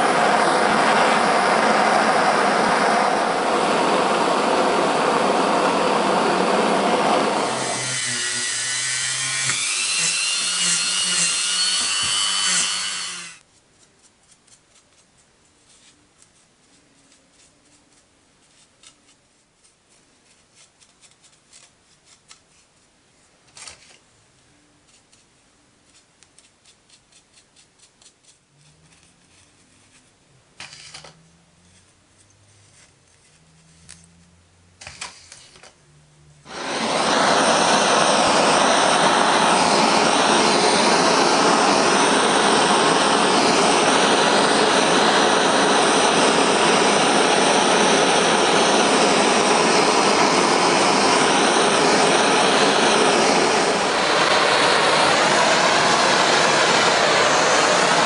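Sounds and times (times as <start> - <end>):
gas blowtorch hissing: 36.5 - 58.0.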